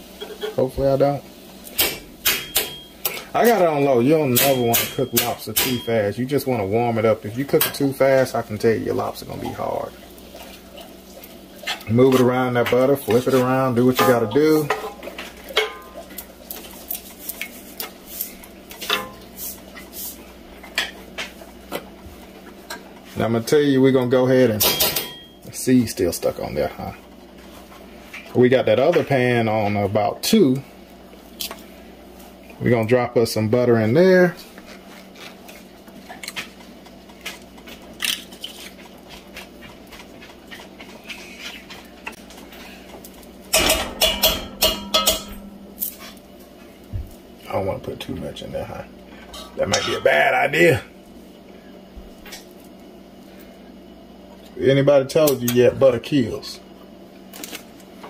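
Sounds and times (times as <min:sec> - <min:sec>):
faint steady hum: 0:00.0 - 0:58.0
metal spoon clinking skillet: 0:43.5 - 0:45.5.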